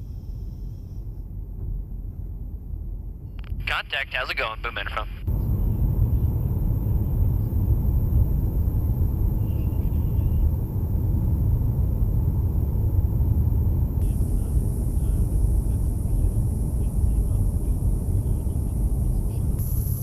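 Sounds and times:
engine rumble: 0.0s - 20.0s
airflow noise: 5.2s - 20.0s.

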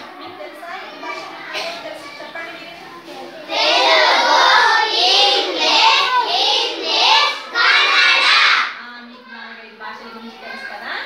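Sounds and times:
children singing in unison: 3.4s - 8.7s.

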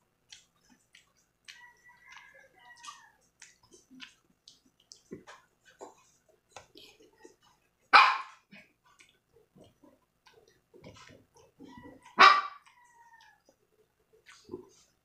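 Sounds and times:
crisp chewing: 0.0s - 15.0s
dog barking: 7.9s - 8.4s, 12.0s - 12.7s.

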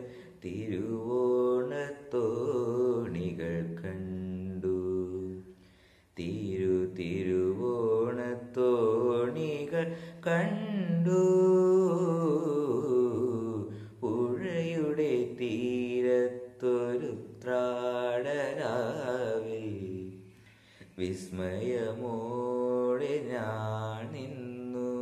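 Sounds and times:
boy singing with vibrato: 6.2s - 20.1s.

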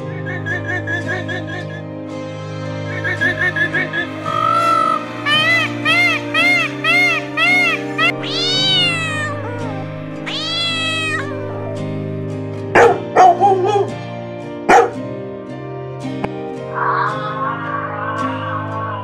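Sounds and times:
background music: 0.0s - 19.0s
cat meowing: 5.3s - 12.1s.

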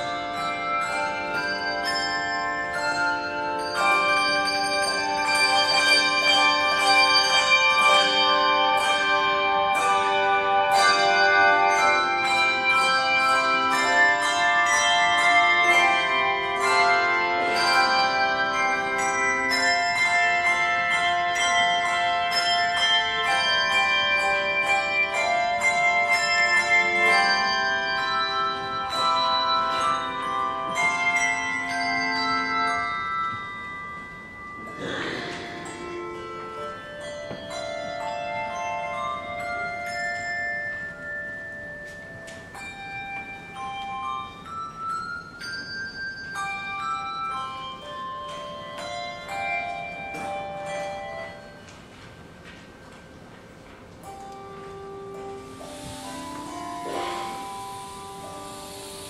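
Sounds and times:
handbell choir ringing a hymn: 0.0s - 59.0s.

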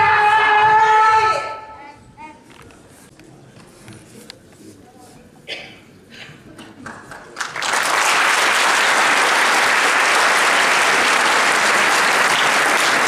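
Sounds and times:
audience applauding: 6.8s - 13.0s.

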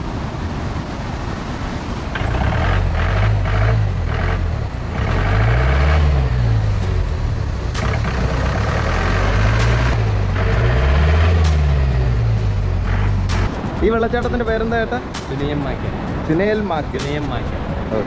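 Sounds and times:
jeep engine revving: 2.1s - 15.0s.

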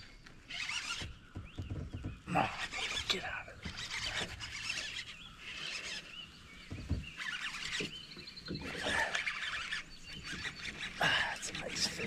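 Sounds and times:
fishing reel cranking: 0.4s - 1.1s, 2.4s - 6.1s, 7.2s - 8.0s, 8.7s - 12.0s.

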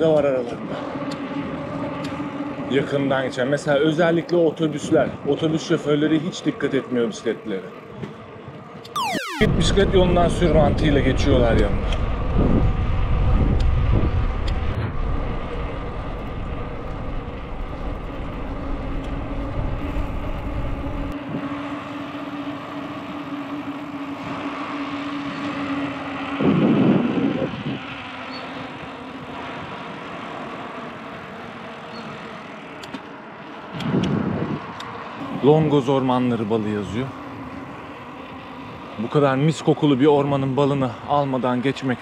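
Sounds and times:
vehicle passing on road: 27.5s - 39.4s.

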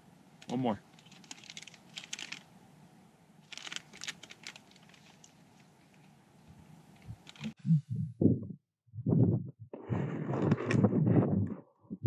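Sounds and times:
plastic wrapper crinkling: 0.9s - 2.5s, 3.4s - 6.1s, 7.2s - 7.5s.

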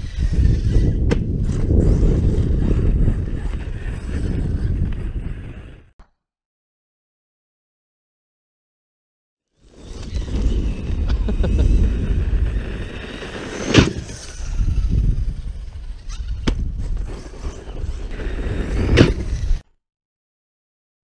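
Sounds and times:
electric motor whine: 9.6s - 19.6s
tyres rumbling on gravel: 9.9s - 19.6s
toy truck landing impacts: 13.6s - 14.4s.

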